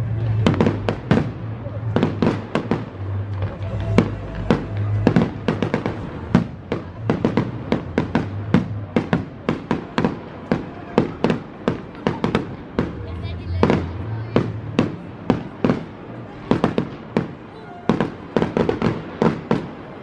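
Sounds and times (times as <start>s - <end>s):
music playing: 0.0s - 9.0s
fireworks bursting: 0.0s - 20.0s.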